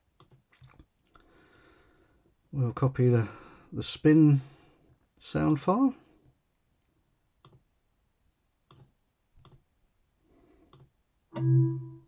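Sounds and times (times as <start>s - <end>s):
computer mouse clicks: 0.2s - 1.0s, 6.8s - 7.7s, 8.7s - 9.6s, 10.7s - 10.9s.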